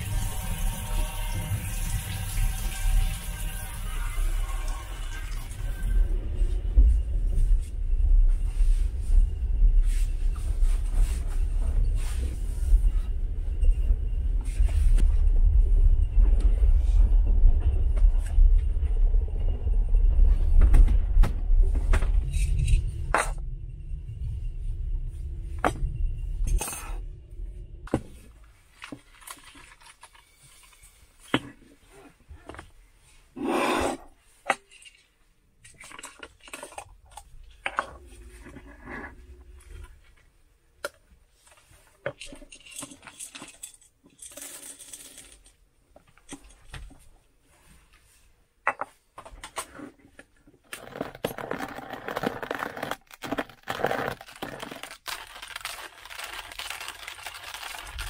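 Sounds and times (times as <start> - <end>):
low rumble: 0.0 - 29.0, 37.4 - 40.6
crunchy coffee grinding: 50.7 - 58.0.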